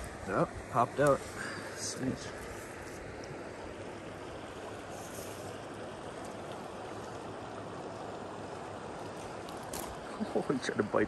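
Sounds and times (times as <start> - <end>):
river flowing: 0.0 - 11.0.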